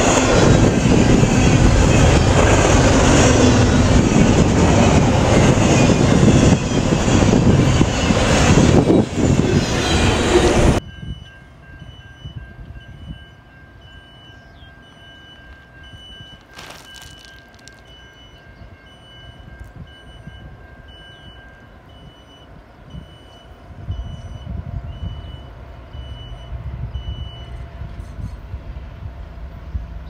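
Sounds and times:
freight train rumbling past: 0.0s - 30.0s
crossing signal electronic beep: 10.8s - 27.6s.

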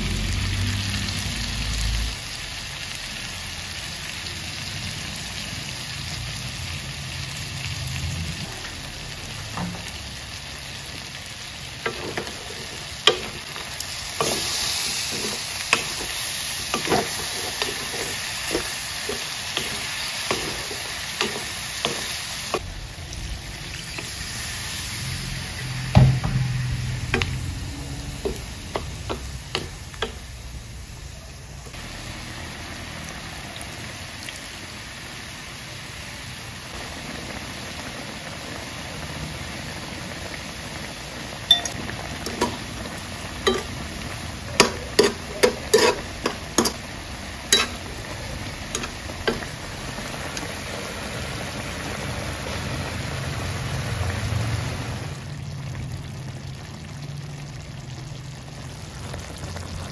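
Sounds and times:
sauce boiling and sizzling in pan: 0.0s - 59.9s
spoon knocking against pan: 26.0s - 27.4s, 28.2s - 30.2s, 43.5s - 43.8s, 44.6s - 46.8s, 47.6s - 48.0s.

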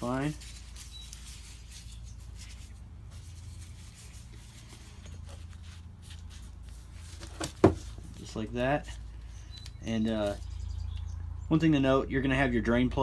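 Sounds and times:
gloved hands rubbing parts: 0.0s - 10.6s.

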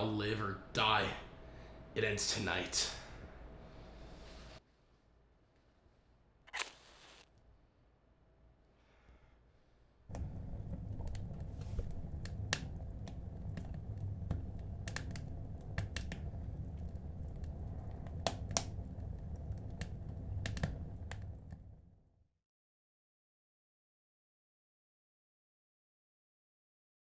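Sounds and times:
steady low hum: 0.0s - 6.2s, 7.6s - 22.1s
sharp crackling clicks: 10.1s - 21.7s.

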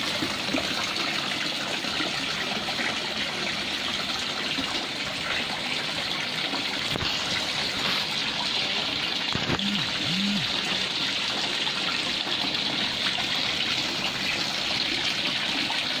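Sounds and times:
fountain water splashing into pond: 0.0s - 16.0s
short low sounds: 9.4s - 10.6s.

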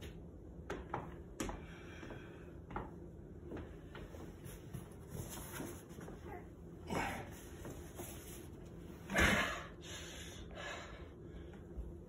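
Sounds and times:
footsteps on hardwood floor: 0.0s - 6.4s.

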